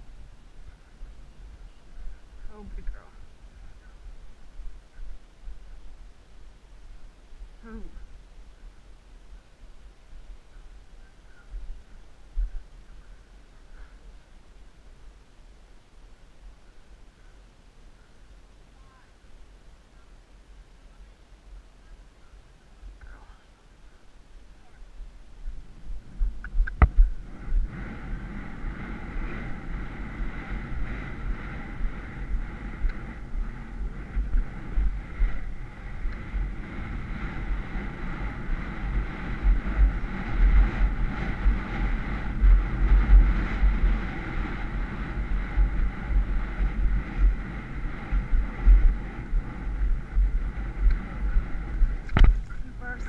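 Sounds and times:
wind buffeting microphone: 0:00.0 - 0:17.4, 0:22.3 - 0:53.0
low uneven thumping: 0:25.4 - 0:52.6.

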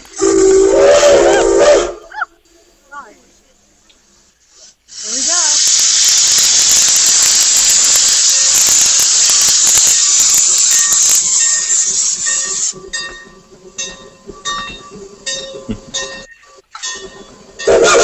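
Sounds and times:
steam locomotive venting steam: 0:00.0 - 0:02.7, 0:04.0 - 0:18.0.

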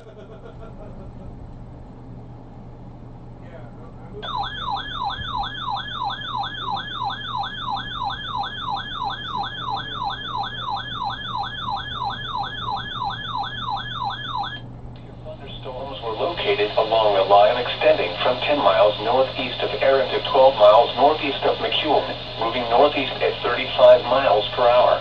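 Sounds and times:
steady low hum: 0:00.0 - 0:25.0
electronic alert siren yelping: 0:04.2 - 0:14.6.

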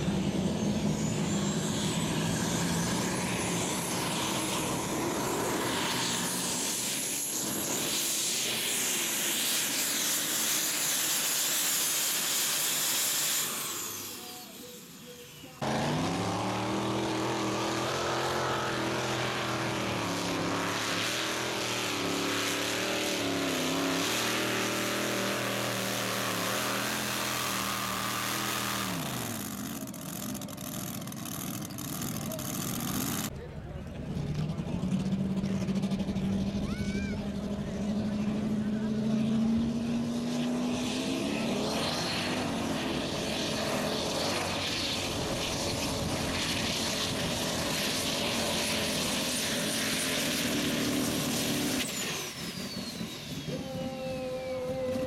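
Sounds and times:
racing tractor engine at full throttle: 0:00.0 - 0:55.0
high turbo whistle: 0:49.4 - 0:55.0.

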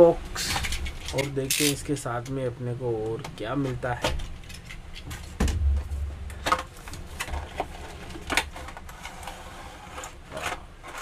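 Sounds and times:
plastic tray sliding: 0:06.7 - 0:11.0.

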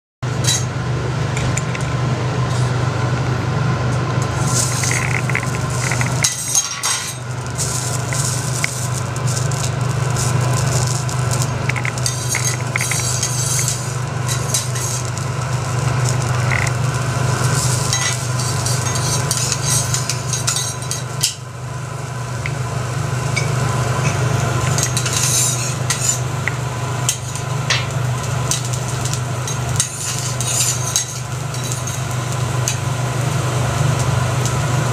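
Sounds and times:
steady low hum: 0:00.2 - 0:34.9
butter sizzling on steel plate: 0:04.2 - 0:34.9
spatula on hot griddle: 0:04.2 - 0:34.9
metal utensils clinking and scraping: 0:04.6 - 0:07.2, 0:11.7 - 0:15.1, 0:17.5 - 0:21.1, 0:24.7 - 0:26.2, 0:29.5 - 0:32.0.

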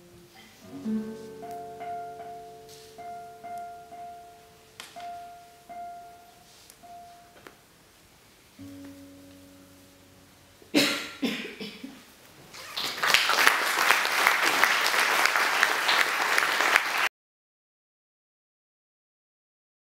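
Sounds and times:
classical guitar chord: 0:00.0 - 0:07.3, 0:08.6 - 0:10.8
applause: 0:12.5 - 0:17.1
audience noise: 0:12.5 - 0:17.1.

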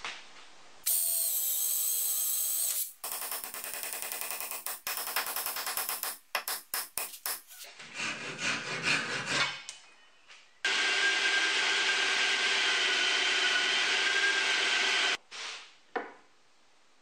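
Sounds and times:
handsaw cutting plywood: 0:07.5 - 0:09.7
drill running: 0:10.7 - 0:15.2.

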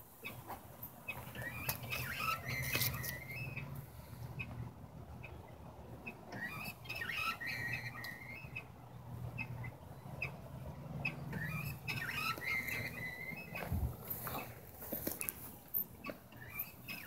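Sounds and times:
squeaking mechanisms: 0:00.0 - 0:17.0.

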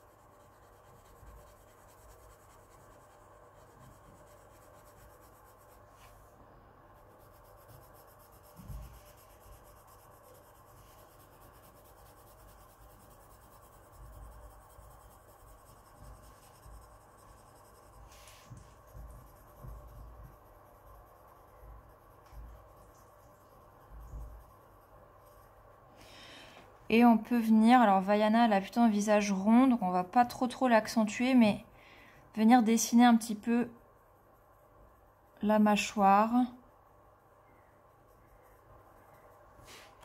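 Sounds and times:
pencil scratching on paper: 0:00.0 - 0:06.3, 0:06.9 - 0:25.7.

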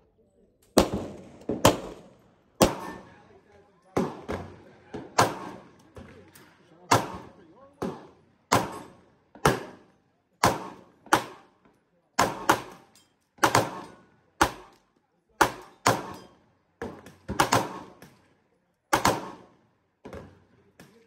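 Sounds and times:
pistol shots with echo: 0:00.8 - 0:03.3, 0:03.9 - 0:05.9, 0:06.9 - 0:11.5, 0:12.2 - 0:14.8, 0:15.4 - 0:18.2, 0:18.9 - 0:20.2.

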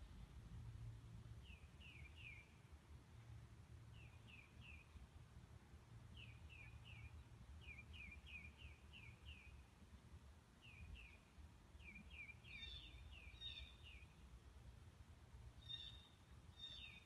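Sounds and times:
faint low rumble: 0:00.0 - 0:08.1
faint bird chirps: 0:01.4 - 0:02.6, 0:10.6 - 0:14.2, 0:15.6 - 0:17.0.

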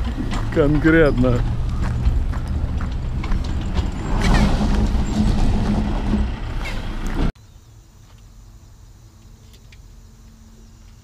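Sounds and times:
truck diesel engine running: 0:00.0 - 0:07.3.

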